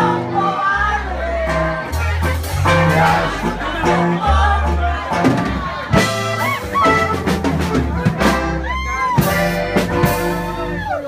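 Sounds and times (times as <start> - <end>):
electric bass: 0.0 - 11.0
drum hits: 5.2 - 8.6
brass horns playing melody: 5.9 - 10.8.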